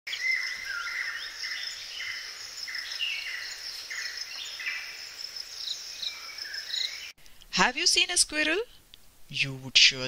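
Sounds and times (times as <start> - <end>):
high-pitched insect trill: 0.1 - 7.0
birds chirping: 0.1 - 7.2.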